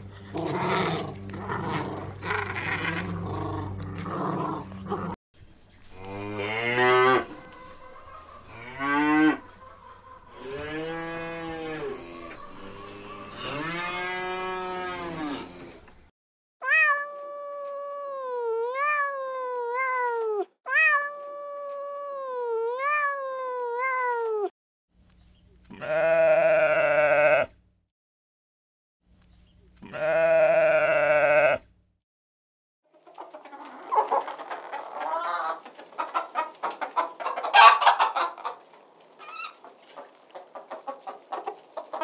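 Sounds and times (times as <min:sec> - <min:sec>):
cattle mooing: 0:05.9 - 0:07.7, 0:08.4 - 0:09.5, 0:10.3 - 0:15.9, 0:30.0 - 0:31.6
cat meowing: 0:16.6 - 0:24.5
loud bleat: 0:25.7 - 0:27.6, 0:29.8 - 0:31.7.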